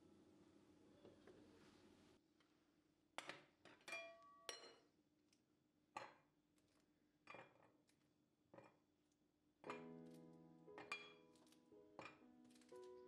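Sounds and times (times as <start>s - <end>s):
glass clinks and taps: 3.9s - 4.8s, 10.8s - 12.7s.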